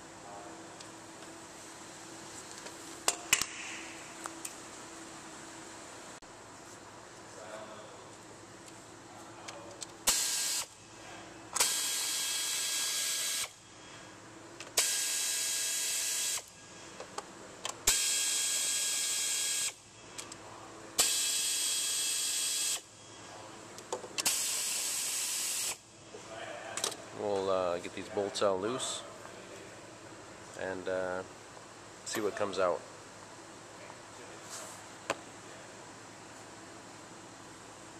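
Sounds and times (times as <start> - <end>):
air ratchet hissing and whining: 10.1 - 10.8, 11.6 - 13.6, 14.8 - 16.6, 17.9 - 19.8, 21.0 - 22.9, 24.2 - 25.8.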